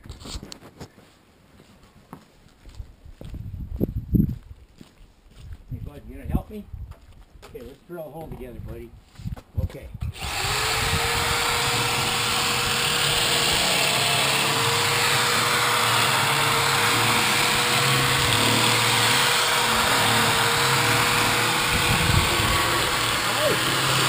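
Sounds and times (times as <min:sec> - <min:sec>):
electric drill boring into metal: 0:10.1 - 0:24.0.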